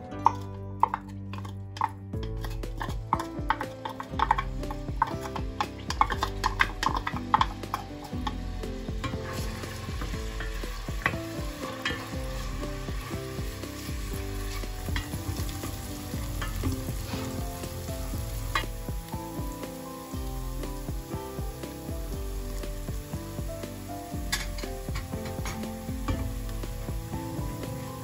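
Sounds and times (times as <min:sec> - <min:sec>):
wooden spoon scraping and tapping pot: 0:00.2 - 0:08.4, 0:09.0 - 0:18.9, 0:24.2 - 0:26.6
onions sizzling in oil: 0:02.4 - 0:28.0.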